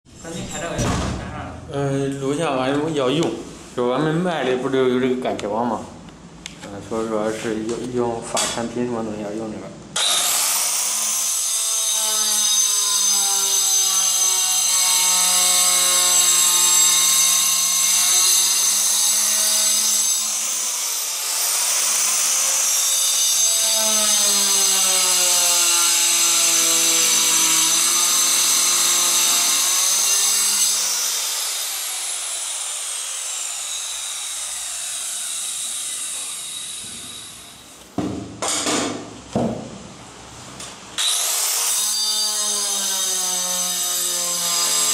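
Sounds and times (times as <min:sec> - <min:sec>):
electric tile cutter whining: 0:10.0 - 0:37.7, 0:41.0 - 0:44.9
sharp knocks: 0:38.0 - 0:39.8.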